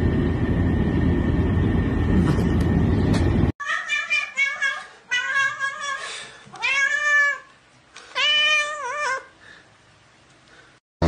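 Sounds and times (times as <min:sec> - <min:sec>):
cat meowing: 0:03.6 - 0:07.5, 0:08.1 - 0:09.3.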